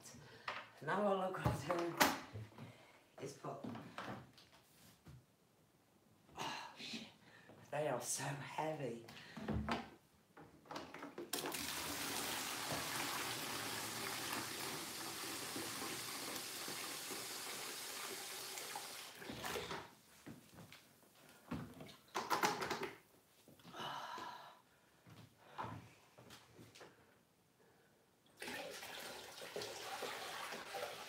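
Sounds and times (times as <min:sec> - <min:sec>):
water pouring from bucket: 0:11.3 - 0:19.9, 0:28.4 - 0:31.0.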